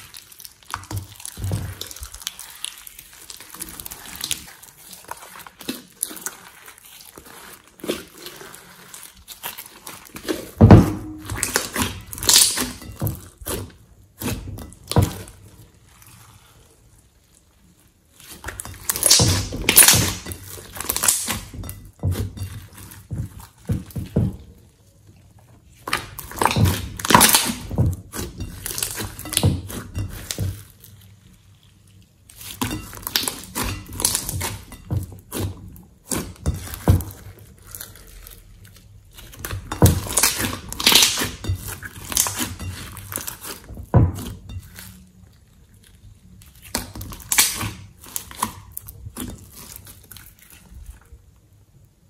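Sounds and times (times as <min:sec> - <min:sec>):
slime squelching: 0:00.0 - 0:51.4.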